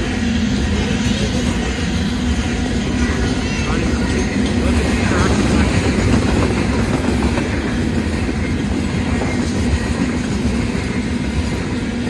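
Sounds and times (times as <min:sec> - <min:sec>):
freight train rolling past: 0:00.0 - 0:12.0.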